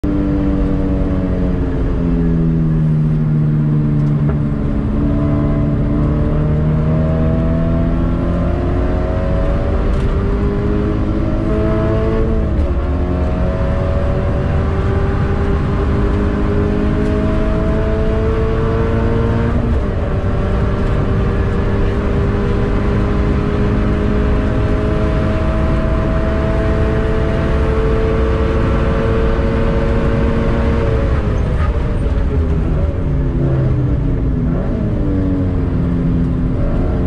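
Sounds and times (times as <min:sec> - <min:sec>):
car engine accelerating: 0:00.0 - 0:37.0
road noise rumble: 0:00.0 - 0:37.0.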